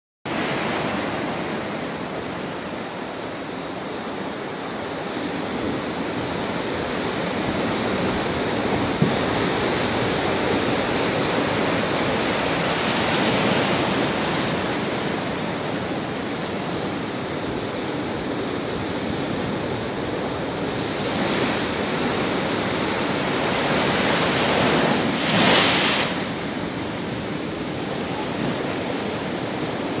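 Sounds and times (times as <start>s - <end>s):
surf breaking on shore: 6.4s - 30.0s.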